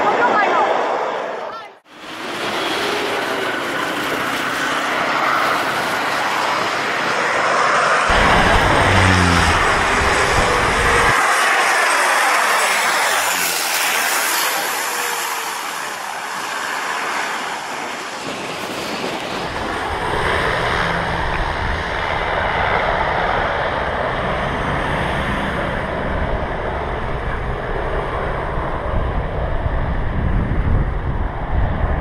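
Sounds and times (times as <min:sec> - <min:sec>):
car traffic: 0:00.0 - 0:31.6
wind buffeting microphone: 0:02.4 - 0:11.2, 0:17.2 - 0:32.0.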